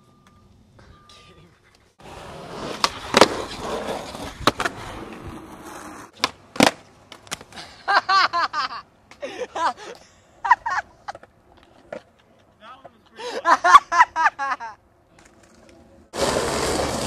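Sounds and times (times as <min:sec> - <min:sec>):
skateboard wheels rolling on concrete: 0:01.8 - 0:17.0
skateboard slapping asphalt: 0:02.0 - 0:07.6, 0:15.2 - 0:17.0
skateboard clacking: 0:02.7 - 0:05.2, 0:06.0 - 0:07.6, 0:11.1 - 0:13.0, 0:15.2 - 0:17.0.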